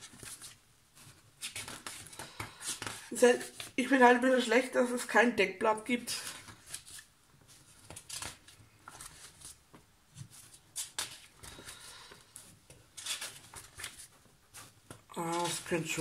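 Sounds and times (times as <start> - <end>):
paper sheets rustling and crackling: 0.0 - 3.9, 6.1 - 16.0.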